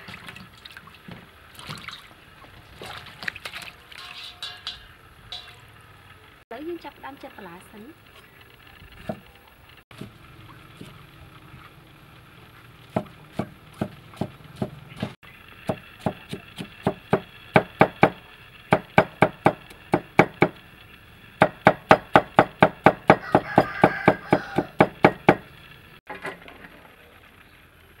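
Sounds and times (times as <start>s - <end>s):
cleaver chopping on wooden block: 15.7s - 20.5s.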